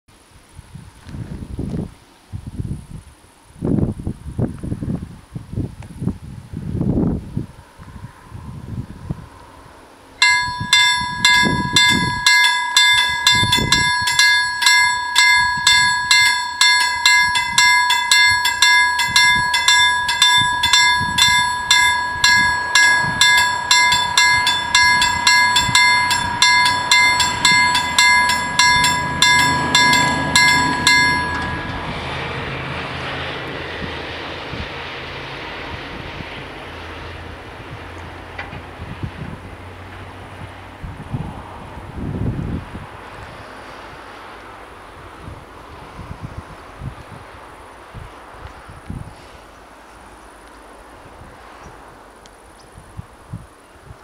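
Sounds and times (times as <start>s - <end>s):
approaching train rumble: 0.2s - 53.9s
level crossing warning bells: 10.2s - 33.4s.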